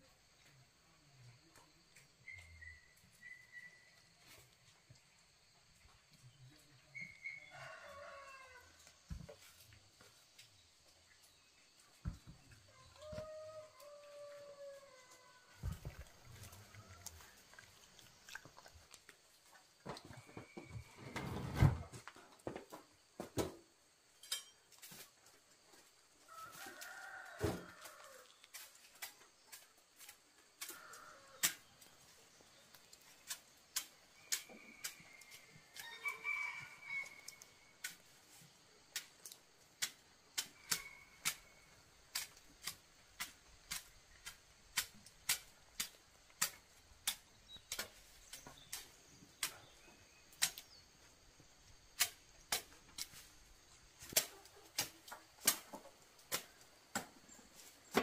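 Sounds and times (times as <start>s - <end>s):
rooster crowing: 7.3s - 8.8s, 12.7s - 15.7s, 26.3s - 28.3s, 34.4s - 37.6s.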